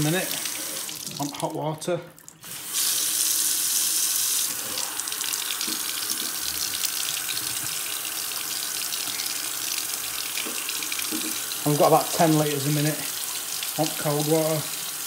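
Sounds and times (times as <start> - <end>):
tap water splashing into sink: 5.4 - 6.4, 8.9 - 12.4.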